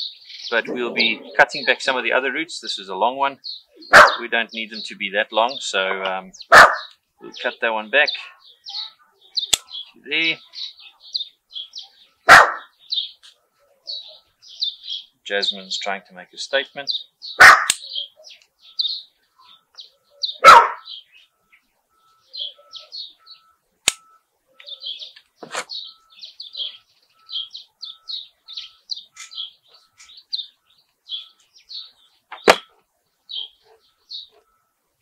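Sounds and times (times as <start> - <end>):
birds chirping: 0.0 - 35.0
dog barking loudly: 3.9 - 4.3, 6.4 - 6.9, 12.2 - 12.8, 17.4 - 18.3, 20.2 - 20.9
sharp clicks: 23.8 - 25.7.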